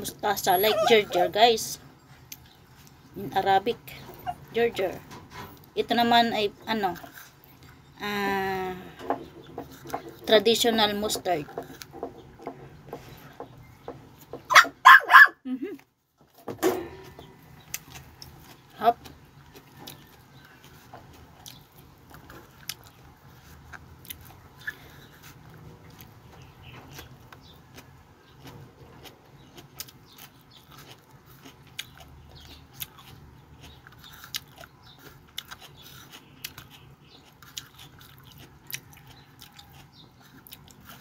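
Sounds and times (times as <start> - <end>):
person chewing crunchy greens: 2.2 - 3.6, 17.0 - 41.0.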